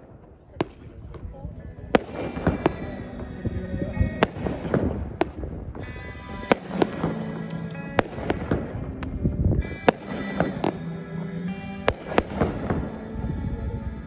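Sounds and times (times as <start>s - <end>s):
fireworks bangs and pops: 0.0s - 1.3s, 1.9s - 3.0s, 4.2s - 7.3s, 8.0s - 10.8s, 11.9s - 12.8s
music playing: 1.4s - 14.0s.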